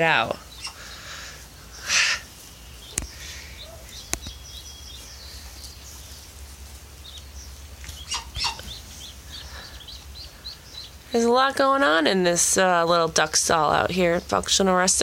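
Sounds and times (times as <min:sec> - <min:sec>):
ducklings peeping: 0:00.0 - 0:15.0
sharp clicks: 0:02.9 - 0:03.2, 0:03.9 - 0:04.4.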